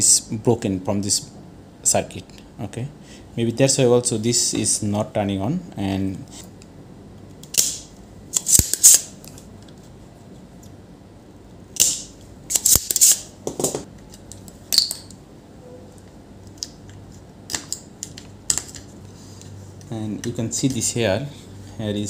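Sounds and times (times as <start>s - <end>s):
desoldering pump snaps: 7.4s - 9.4s, 11.8s - 13.2s.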